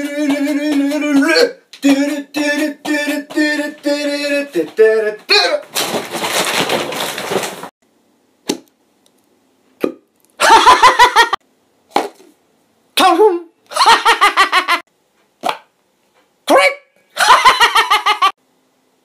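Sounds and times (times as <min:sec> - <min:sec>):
man's laughter-like syllables: 0:10.4 - 0:11.4, 0:13.7 - 0:14.8, 0:17.2 - 0:18.3.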